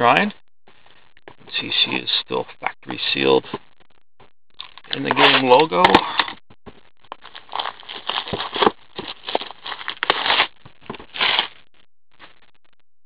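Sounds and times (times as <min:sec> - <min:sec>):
plastic shrink-wrap tearing crinkling: 0:07.2 - 0:11.6.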